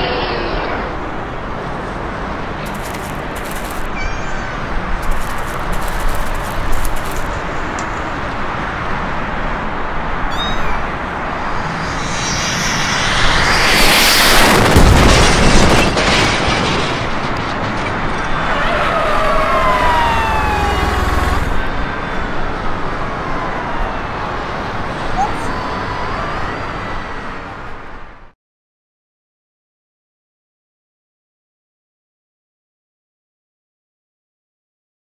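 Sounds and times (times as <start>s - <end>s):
jet engine roar: 9.7s - 23.6s
falling whines: 10.3s - 16.8s, 18.2s - 21.9s
low rumble: 11.0s - 18.4s, 19.6s - 21.8s
loud crash and boom: 11.3s - 18.6s.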